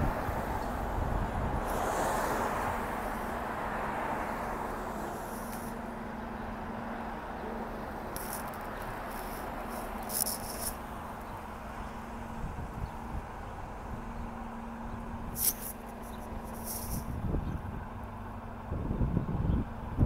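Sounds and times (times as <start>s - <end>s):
bus engine idling: 0.0s - 20.0s.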